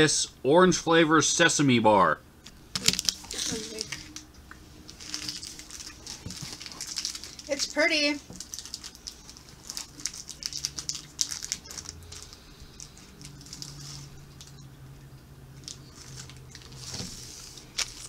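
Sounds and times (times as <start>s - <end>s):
plastic wrapper crinkling: 2.7s - 14.6s, 15.6s - 18.0s.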